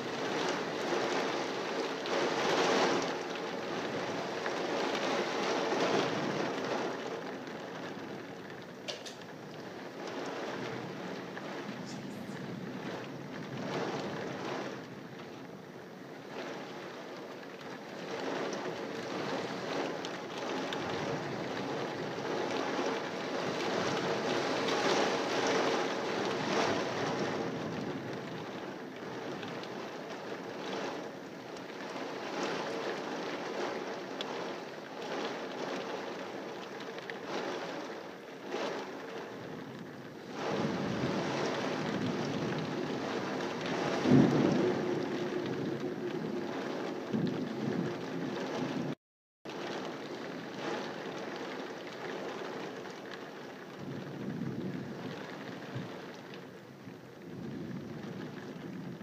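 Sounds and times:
gusting wind: 0.0s - 49.0s
heavy rain: 0.0s - 59.0s.

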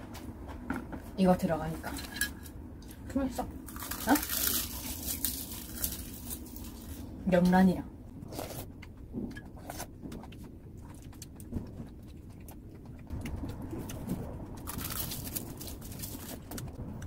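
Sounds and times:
faint low hums: 0.0s - 17.0s
chewing: 8.2s - 16.8s.

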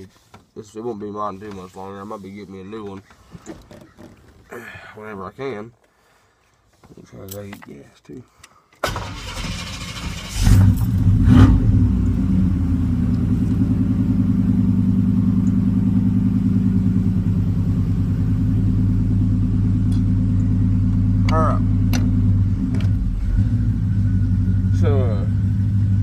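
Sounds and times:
truck engine starting and idling: 8.8s - 26.0s.

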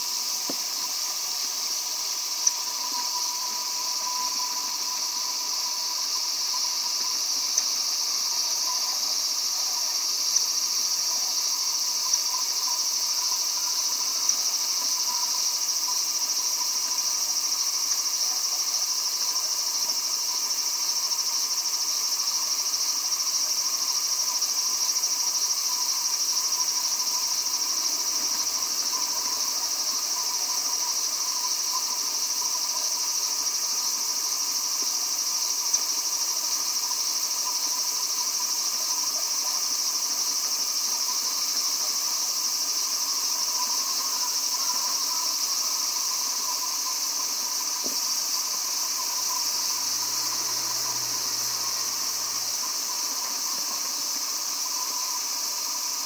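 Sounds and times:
high-pitched insect drone: 0.0s - 56.0s
faint ticks: 34.7s - 35.0s.

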